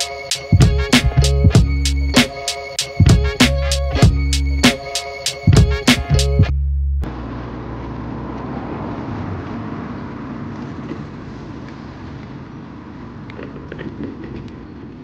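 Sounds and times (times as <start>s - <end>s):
music track: 0.0s - 7.1s
road traffic hum: 6.2s - 15.0s.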